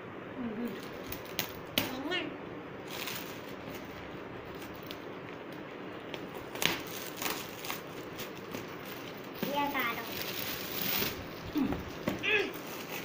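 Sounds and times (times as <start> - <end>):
foil gift wrap rustling: 2.8 - 13.0
sharp crackle: 6.5 - 11.4.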